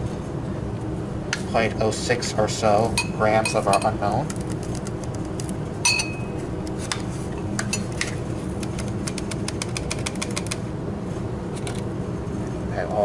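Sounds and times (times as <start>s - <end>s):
low hum: 0.0s - 9.3s
glassware clinks and taps: 3.0s - 3.9s, 5.9s - 6.3s.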